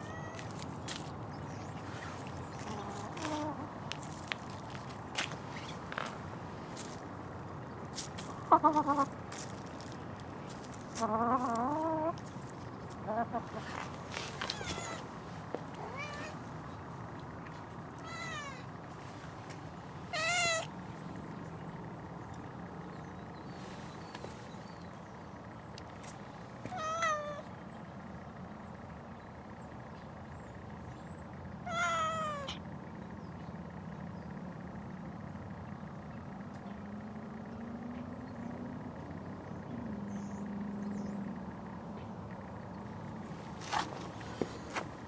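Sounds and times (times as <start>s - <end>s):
cat meowing: 0.0s - 0.5s, 14.5s - 15.0s, 15.8s - 16.4s, 18.0s - 18.6s, 20.1s - 20.7s, 26.7s - 27.4s, 31.7s - 32.6s.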